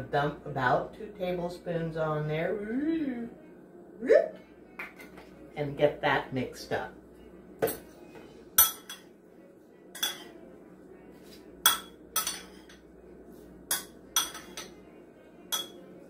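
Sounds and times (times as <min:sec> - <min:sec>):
metal utensil clinking in ceramic bowl: 0:10.0 - 0:10.3, 0:13.7 - 0:14.7, 0:15.5 - 0:15.8.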